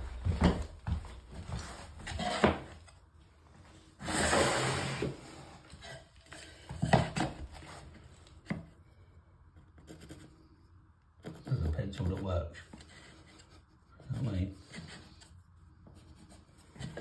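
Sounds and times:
board scraping: 1.4 - 3.0, 3.7 - 8.0.

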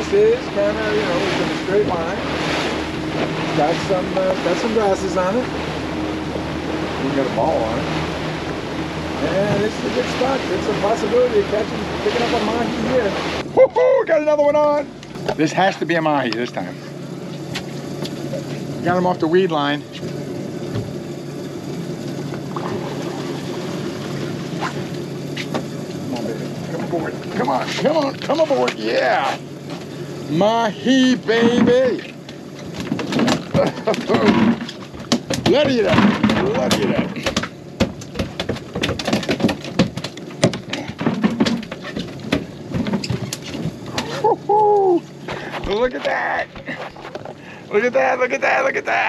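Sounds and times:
water rushing and splashing: 0.0 - 13.6, 22.0 - 28.7
boat engine running: 0.0 - 49.0
fish thrashing on deck: 31.4 - 44.3.

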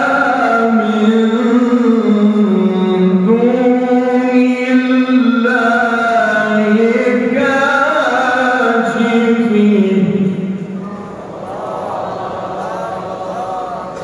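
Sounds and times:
man chanting melodic recitation: 0.0 - 11.2.

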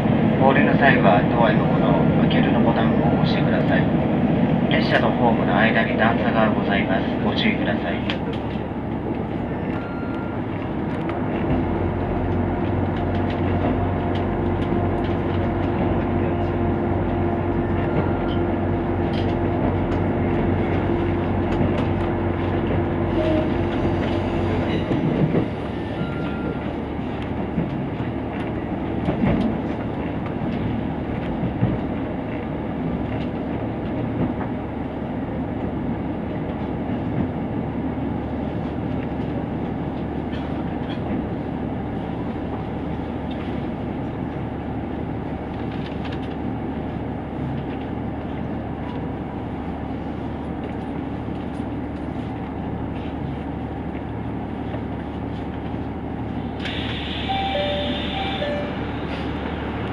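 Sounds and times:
wheels clattering on rails: 7.9 - 34.6, 38.5 - 41.5.

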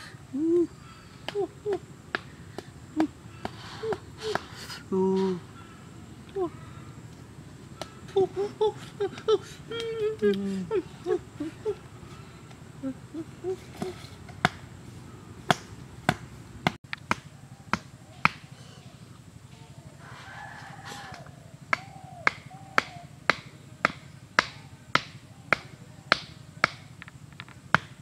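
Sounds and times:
striker knocking on wooden stakes: 1.3 - 4.6, 15.5 - 18.4, 21.1 - 28.0
rooster crowing: 19.5 - 23.2.

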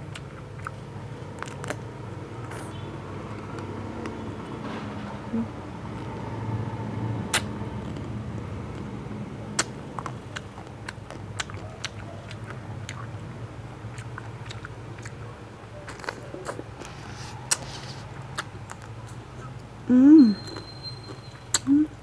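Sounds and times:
crunching ice cream bar: 0.0 - 4.2, 7.3 - 8.9, 9.5 - 19.5.

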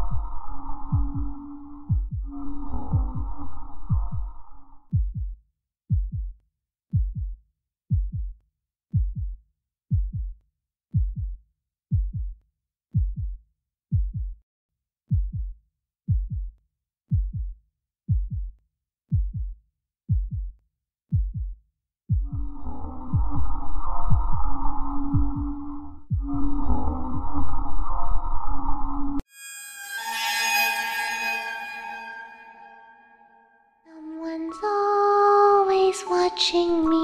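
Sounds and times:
heartbeat thuds: 0.0 - 12.4, 13.0 - 14.4, 15.1 - 27.4.

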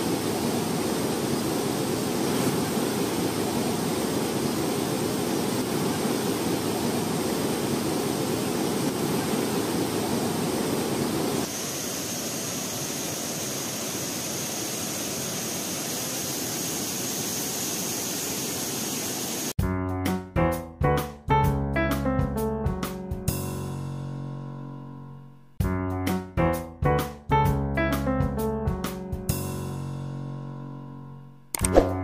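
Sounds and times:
water rushing over boulders: 0.0 - 19.5.

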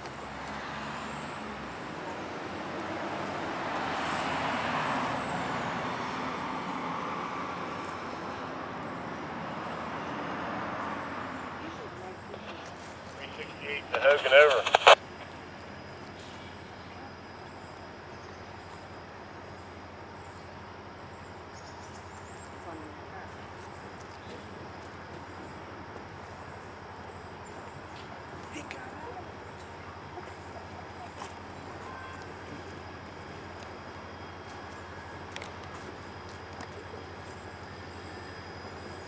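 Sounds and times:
diesel locomotive engine rumble: 10.6 - 39.0.

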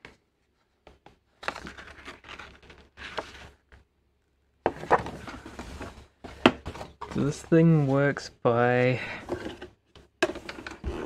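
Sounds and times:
paper rustling and crinkling: 1.1 - 3.9.

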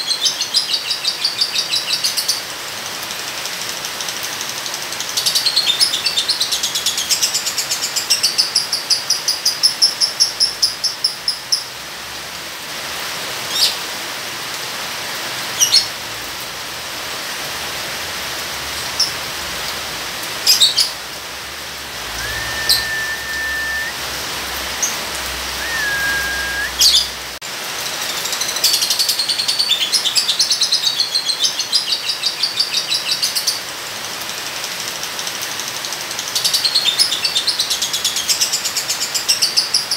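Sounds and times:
rain hiss: 0.1 - 39.3
bird whistled notes: 22.0 - 24.0, 25.5 - 27.1
sharp bird chirps: 22.1 - 24.0, 25.5 - 27.0.

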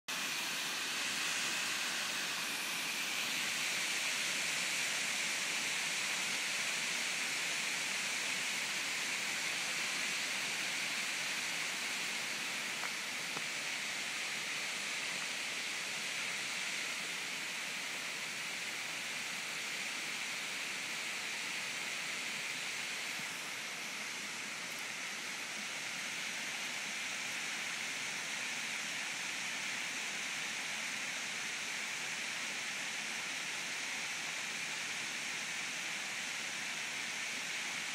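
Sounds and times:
waterfall rushing: 0.1 - 6.6.

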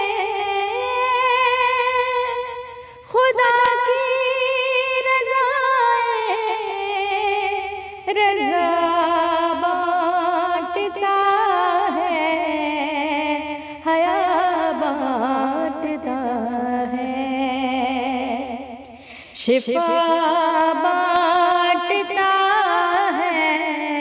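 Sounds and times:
high voice singing: 0.0 - 18.7, 19.4 - 24.0.

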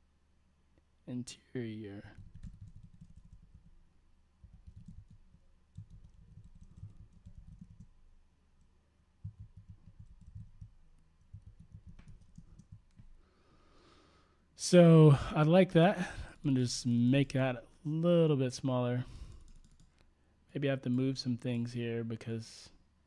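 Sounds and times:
computer keyboard typing: 2.2 - 3.8, 4.4 - 8.0, 8.6 - 13.1, 19.3 - 19.9.

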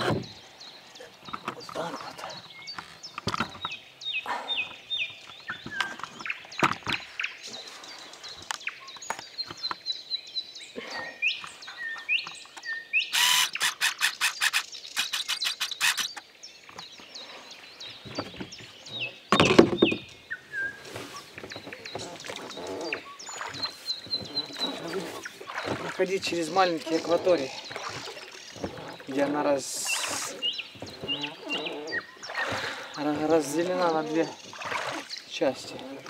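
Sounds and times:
songbirds chirping and whistling: 0.0 - 36.0
fast rattle of sharp clicks: 13.2 - 16.2.

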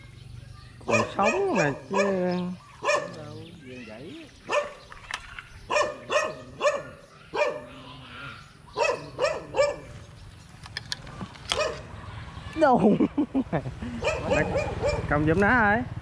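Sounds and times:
dog barking: 0.9 - 3.2, 4.5 - 4.8, 5.7 - 7.8, 8.8 - 10.0, 11.5 - 11.9, 14.0 - 15.2.

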